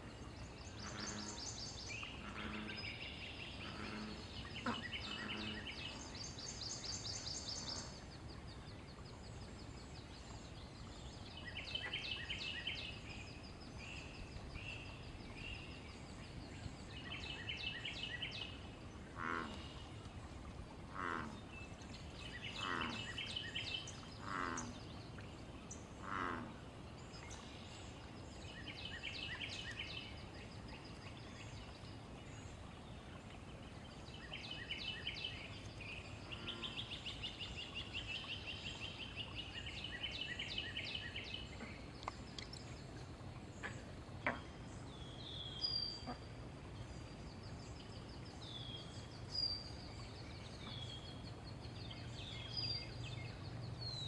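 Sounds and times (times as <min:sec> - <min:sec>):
bullfrog croaking: 0:24.2 - 0:24.7, 0:26.0 - 0:26.6.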